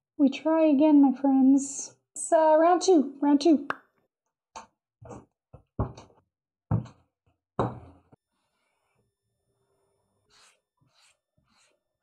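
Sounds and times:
clay thumping on wooden table: 0:07.6 - 0:08.0.

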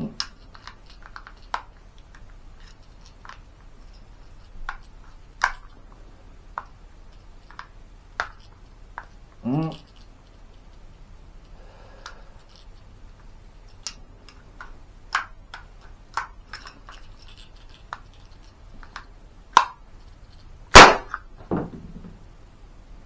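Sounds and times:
toy pistol action clicking: 0:14.6 - 0:16.7.

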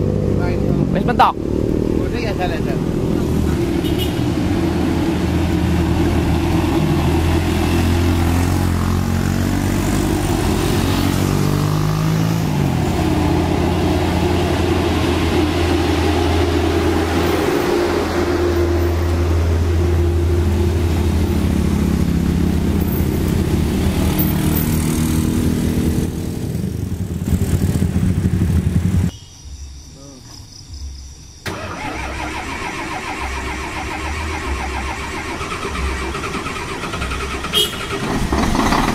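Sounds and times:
truck diesel engine labouring: 0:31.4 - 0:38.9.

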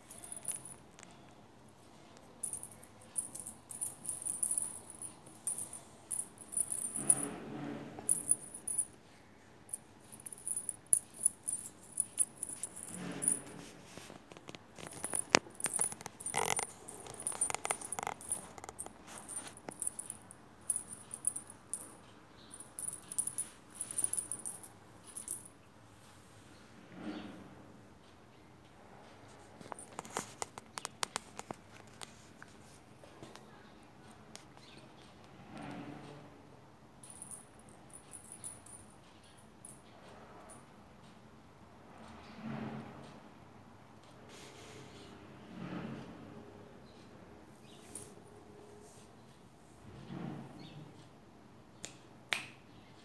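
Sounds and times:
metal chain jingling: 0:00.0 - 0:00.8, 0:02.4 - 0:07.4, 0:08.0 - 0:08.9, 0:09.7 - 0:13.6, 0:14.8 - 0:25.5, 0:37.0 - 0:39.0.

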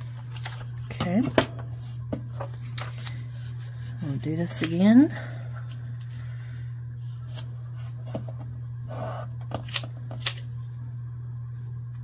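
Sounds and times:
steady low hum: 0:00.0 - 0:12.0
paper folding and rustling: 0:00.1 - 0:00.9, 0:01.8 - 0:04.8.

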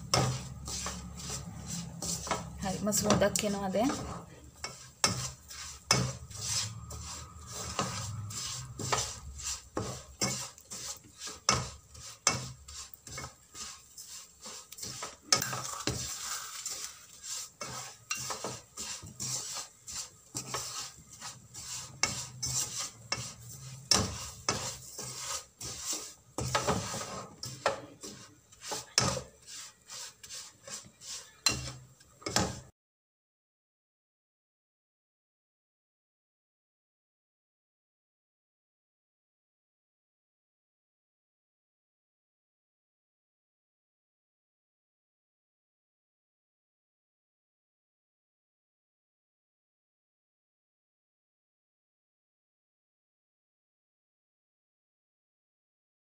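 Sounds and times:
wooden spoon scraping frying pan: 0:00.0 - 0:32.7.

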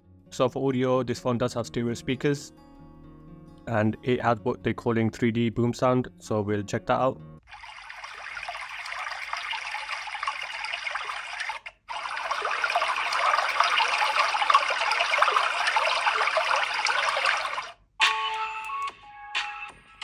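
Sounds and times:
water-like noise from speakers: 0:07.5 - 0:17.8.

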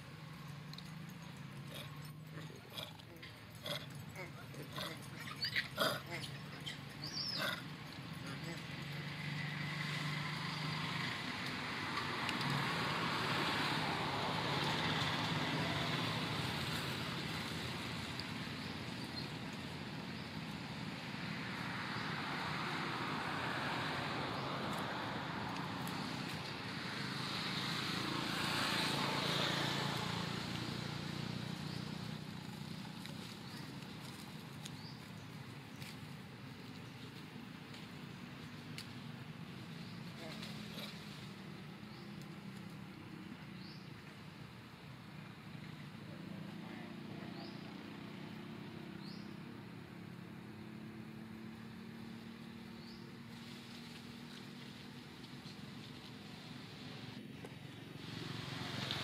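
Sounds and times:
low engine hum: 0:00.0 - 0:59.0.

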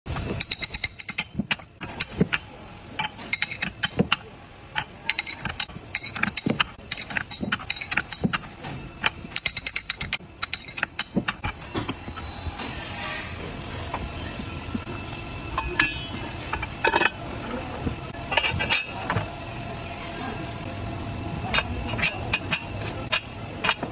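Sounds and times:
metal rollers clinking: 0:00.1 - 0:13.3, 0:15.6 - 0:17.2, 0:18.2 - 0:19.2.

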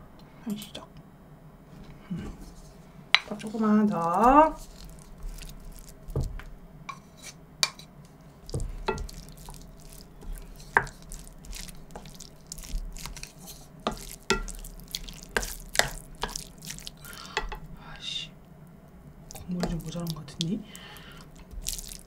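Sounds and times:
spoon scraping a dish: 0:06.9 - 0:07.9, 0:08.8 - 0:17.6.

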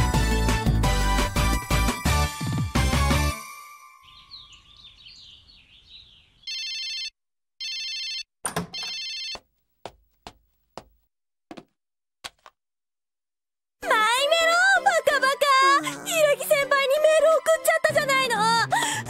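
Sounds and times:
birds chirping: 0:03.9 - 0:06.6
mobile phone ringing: 0:06.5 - 0:09.5.

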